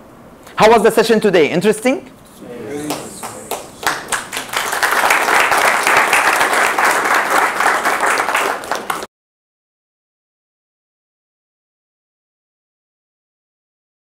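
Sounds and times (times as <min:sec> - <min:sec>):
audience applauding: 0:02.5 - 0:09.1.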